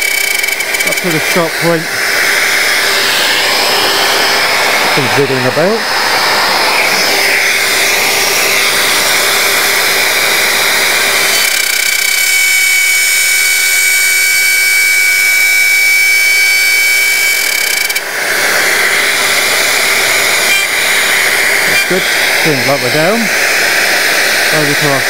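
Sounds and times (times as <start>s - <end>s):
router bit cutting wood: 0.0s - 25.0s
router whining: 0.0s - 25.0s.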